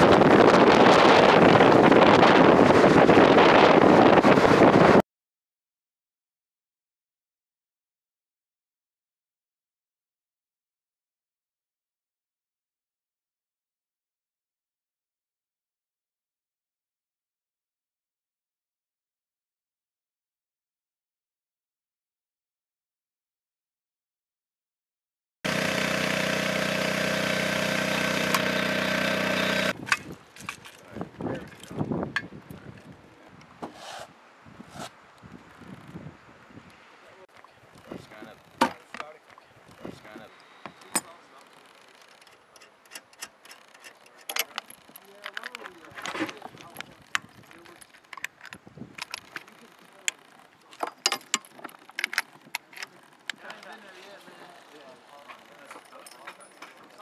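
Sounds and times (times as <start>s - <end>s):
engine running: 25.5s - 29.8s
sharp clicks and clinks: 38.2s - 53.8s, 54.7s - 57.0s.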